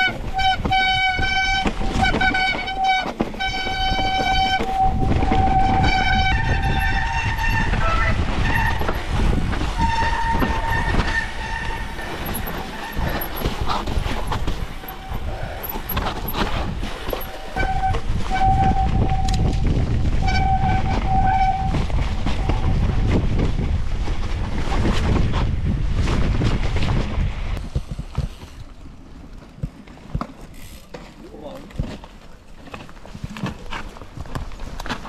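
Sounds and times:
disc brakes squealing: 0.0 - 9.1, 9.8 - 19.6
bike frame rattling: 0.0 - 28.7, 30.1 - 35.0
wind on microphone: 0.0 - 30.8
bike tyre rumble: 0.0 - 35.0.

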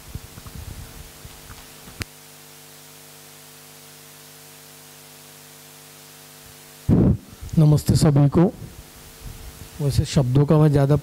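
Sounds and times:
electrical hum: 0.0 - 11.0
even hiss: 6.0 - 11.0.

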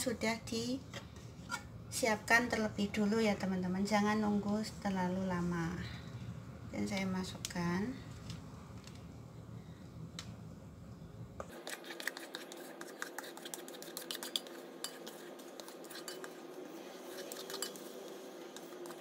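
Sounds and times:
utensil scraping metal bowl: 11.5 - 19.0.

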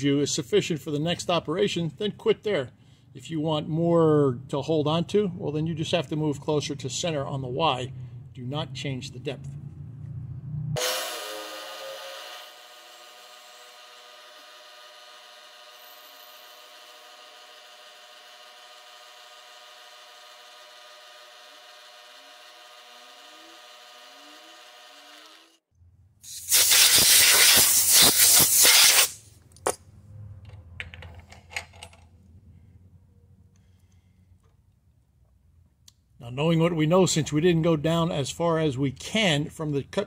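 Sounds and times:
milling machine cutting: 10.8 - 25.6.

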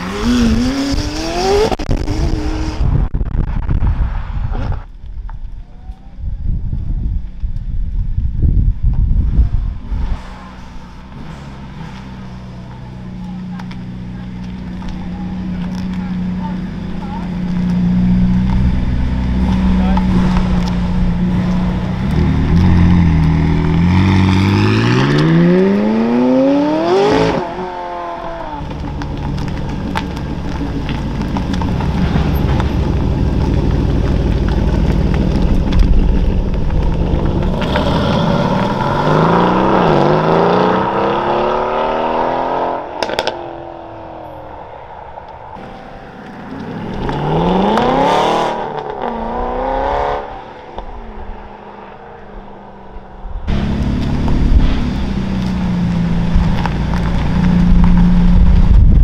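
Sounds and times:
car engine revving: 0.0 - 3.4, 9.3 - 59.0
car accelerating through gears: 45.6 - 52.2.

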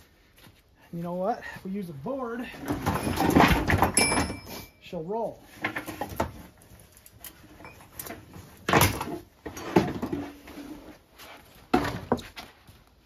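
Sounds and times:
wooden clunks and knocks: 2.6 - 4.5, 8.0 - 10.4, 11.7 - 12.5.

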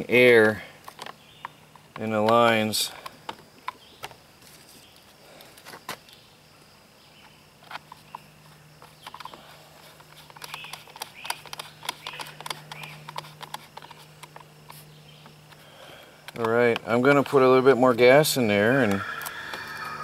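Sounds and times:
bird chirping: 1.1 - 1.8, 14.8 - 15.4, 18.6 - 20.0
screwdriver and plastic parts clicking: 10.0 - 14.5.

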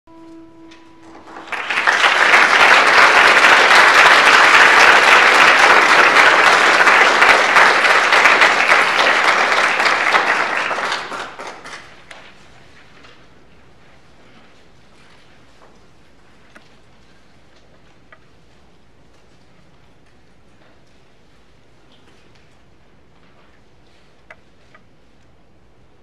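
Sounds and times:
audience applauding: 1.0 - 12.3.

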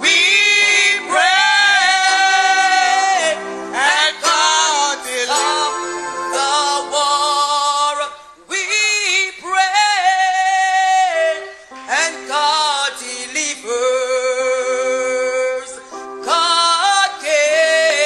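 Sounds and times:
sustained backing chords: 0.0 - 7.8
person singing long notes: 0.0 - 18.0.

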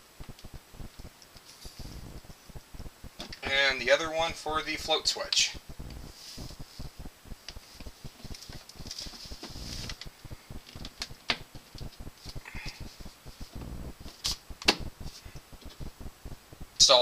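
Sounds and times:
rustling: 0.0 - 17.0
sharp clicks: 0.2 - 3.4, 7.4 - 16.4.

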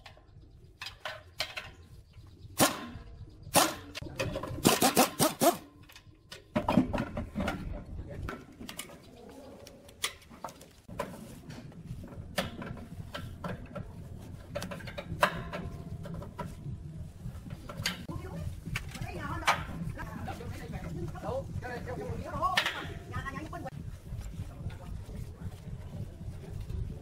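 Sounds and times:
steady low hum: 10.7 - 27.0.

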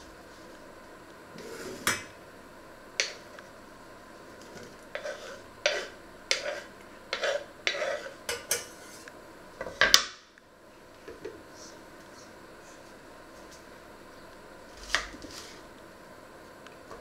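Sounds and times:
knife scraping onion into pot: 4.9 - 9.1.

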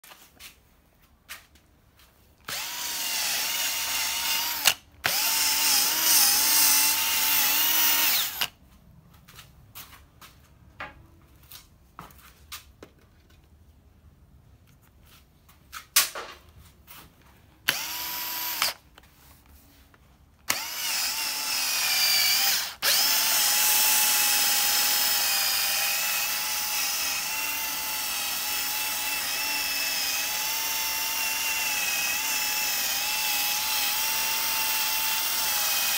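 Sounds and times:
cordless drill motor whine: 2.4 - 8.5, 17.7 - 18.8, 20.5 - 35.9.

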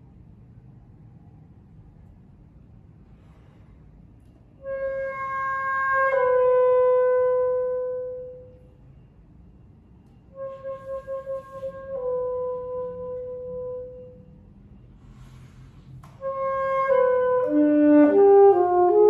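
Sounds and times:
alto saxophone: 4.6 - 8.6, 10.3 - 14.2, 16.0 - 19.0.

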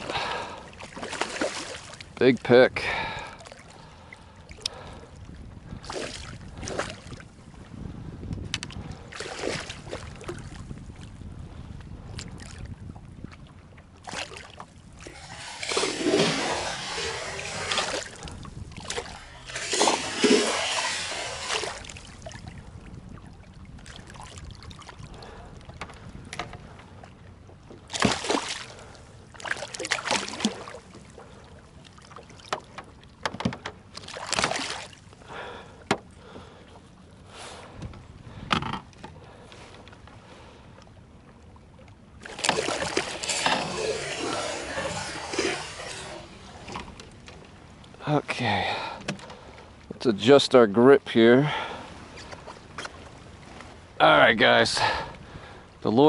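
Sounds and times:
splashing and rustling: 0.0 - 2.2, 5.8 - 7.4, 8.6 - 10.9, 14.0 - 26.8, 27.7 - 35.2, 42.2 - 48.0
water lapping against boat: 0.0 - 56.0
wind on microphone: 4.7 - 27.0.

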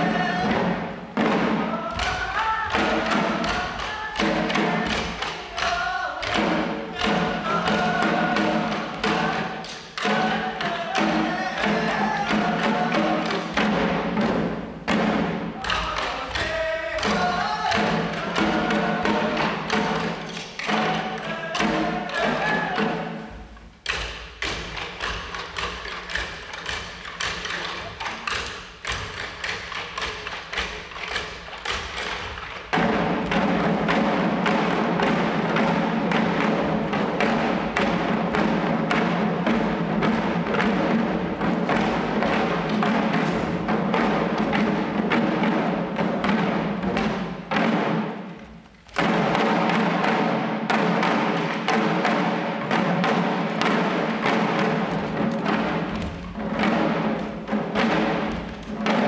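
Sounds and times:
voices singing: 0.0 - 0.8, 1.6 - 13.5, 15.6 - 20.0, 20.7 - 23.2
drums beating in quick rhythm: 0.0 - 59.0.

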